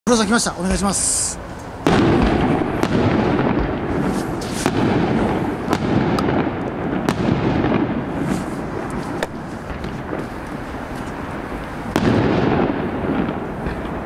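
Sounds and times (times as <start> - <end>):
rumble of overlapping reports: 0.1 - 4.7
fireworks bangs: 1.8 - 14.0.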